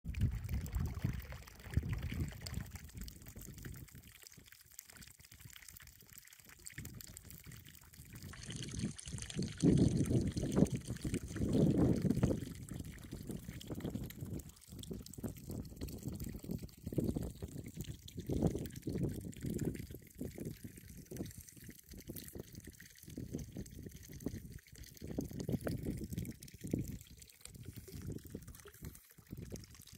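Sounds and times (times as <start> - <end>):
water trickling into tank: 0.0 - 29.9
wind buffeting microphone: 8.2 - 20.8, 23.1 - 29.8.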